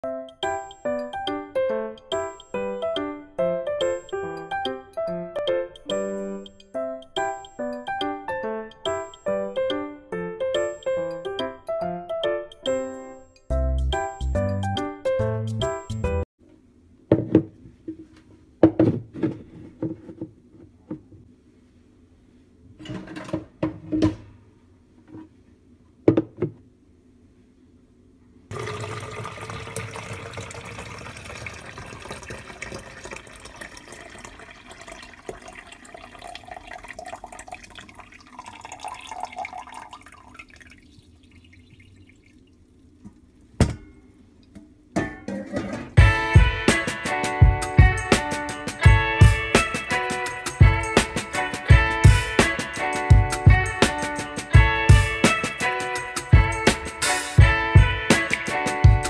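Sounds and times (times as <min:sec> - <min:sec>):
liquid pouring into plastic pitcher: 0:28.5 - 0:42.7.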